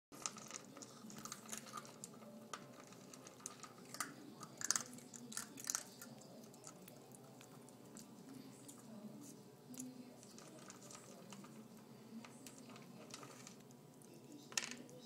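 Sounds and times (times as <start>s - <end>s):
puppy crunching kibble in metal bowl: 0.1s - 9.0s, 9.7s - 14.0s.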